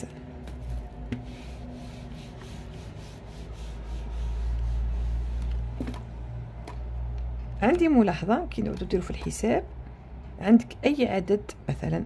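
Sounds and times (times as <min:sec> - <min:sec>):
eraser scrubbing whiteboard: 0:00.6 - 0:05.8.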